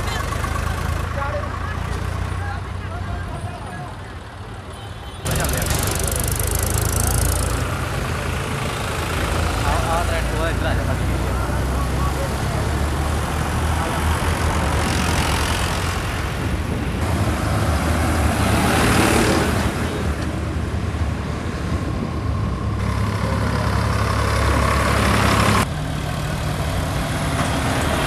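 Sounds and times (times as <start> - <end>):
vehicle engine running: 0.0 - 4.5, 5.3 - 16.2
wind and road noise: 0.0 - 28.0.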